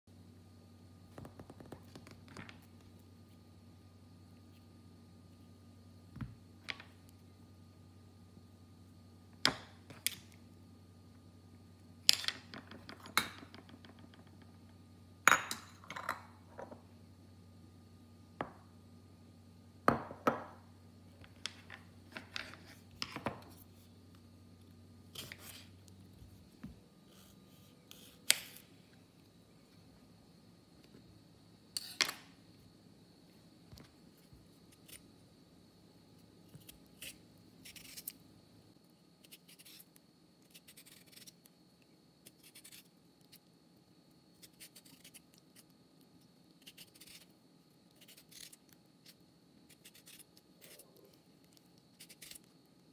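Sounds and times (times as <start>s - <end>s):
peeler scraping cucumber: 36.6s - 38.2s.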